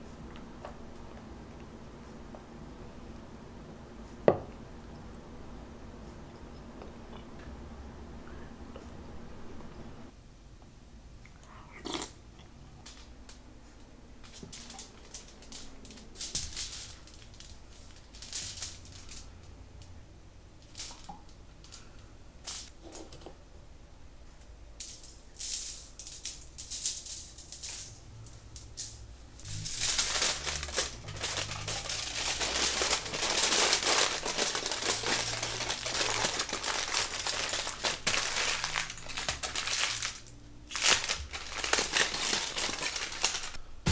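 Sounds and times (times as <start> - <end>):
dense crackling rattle: 14.2 - 19.3, 26.0 - 43.9.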